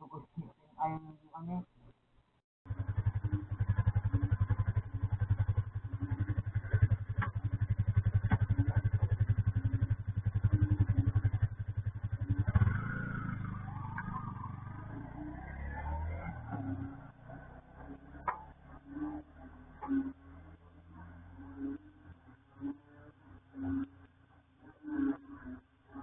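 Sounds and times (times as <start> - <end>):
low steady hum: 0.0 - 26.0
motorcycle engine puttering: 2.7 - 20.6.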